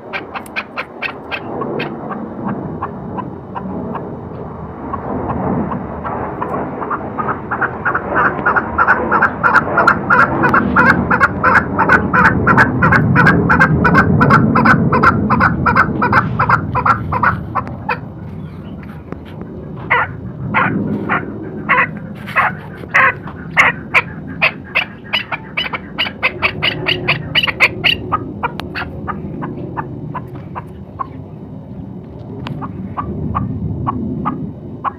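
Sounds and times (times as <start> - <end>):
partridge calling: 0.0 - 2.2, 6.4 - 31.2.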